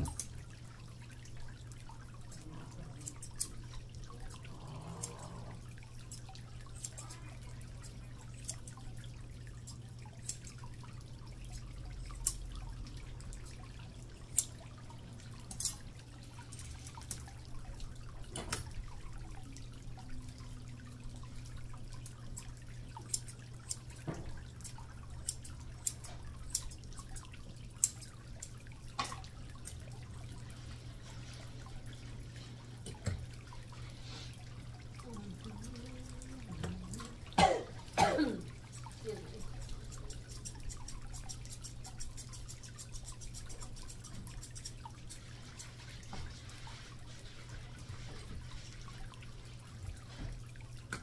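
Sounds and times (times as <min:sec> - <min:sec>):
scissors snipping hair: 0:06.8 - 0:07.2, 0:09.6 - 0:10.6, 0:24.6 - 0:29.8, 0:38.8 - 0:45.7.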